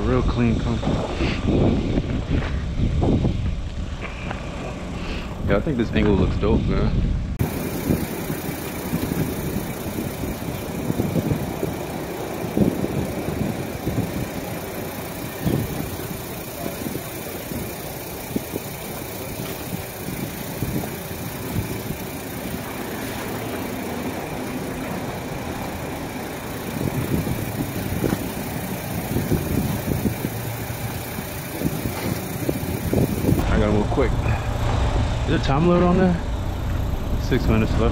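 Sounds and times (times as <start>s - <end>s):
car wash machinery running: 7.4s - 37.9s.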